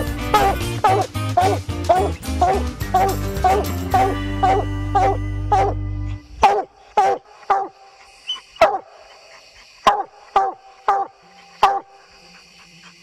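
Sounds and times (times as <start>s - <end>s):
background music: 0.0s - 6.8s
dog barking: 0.3s - 5.8s, 6.4s - 9.2s, 9.8s - 12.0s.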